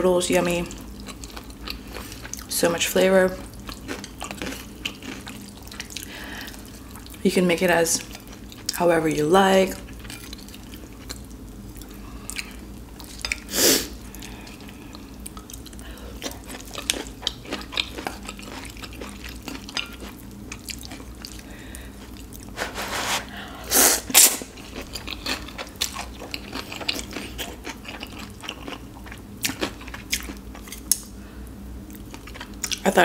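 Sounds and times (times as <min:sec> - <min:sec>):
chewing with wet mouth clicks: 0:03.4 - 0:07.2, 0:14.2 - 0:22.5, 0:24.6 - 0:31.1, 0:31.9 - 0:32.8.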